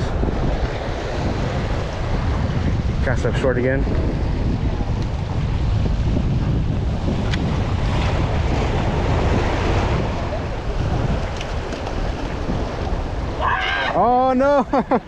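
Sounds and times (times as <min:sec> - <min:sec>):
wind buffeting microphone: 0:00.0 - 0:15.0
waves splashing against rocks: 0:07.0 - 0:14.6.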